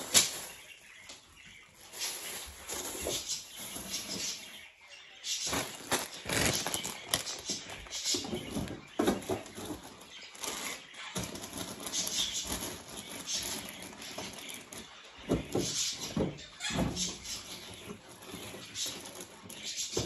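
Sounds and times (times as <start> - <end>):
food packages rustling: 0.0 - 1.0, 5.4 - 14.8
containers knocking and clattering: 5.5 - 10.1.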